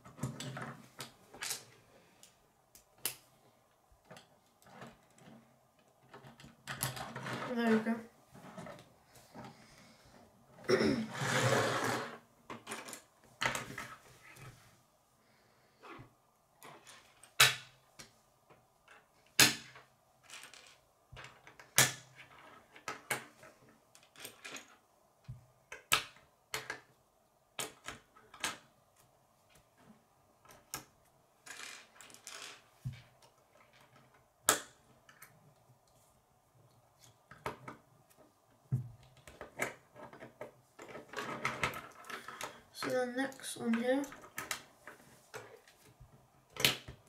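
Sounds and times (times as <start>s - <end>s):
sharp plastic snaps: 2.7s - 3.3s.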